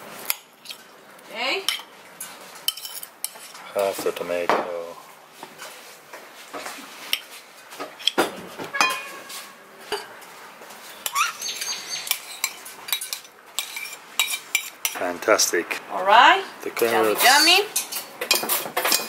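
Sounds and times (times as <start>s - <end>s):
metal spoon clinking on china plates: 8.8s - 9.2s, 11.6s - 15.0s, 16.8s - 19.0s.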